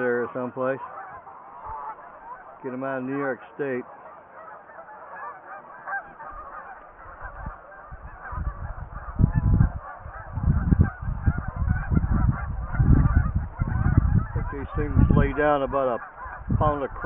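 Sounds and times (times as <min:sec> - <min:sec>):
geese honking: 0:00.0 - 0:17.0
low rumble in gusts: 0:06.3 - 0:17.0.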